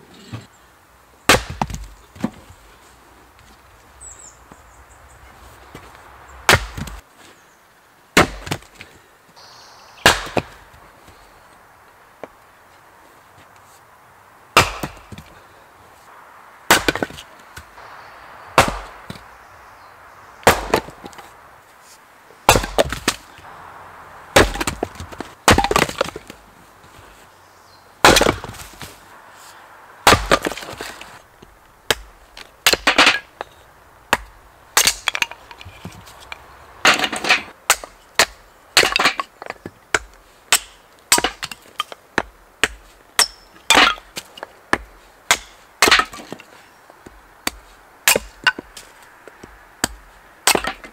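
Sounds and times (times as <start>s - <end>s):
axe chopping firewood: 1.3s - 2.6s, 5.7s - 7.0s, 8.2s - 8.9s, 10.0s - 10.8s, 14.6s - 15.4s, 16.7s - 17.8s, 18.5s - 19.4s, 20.4s - 21.3s, 22.5s - 23.5s, 24.3s - 26.4s, 28.0s - 29.0s, 30.0s - 50.9s.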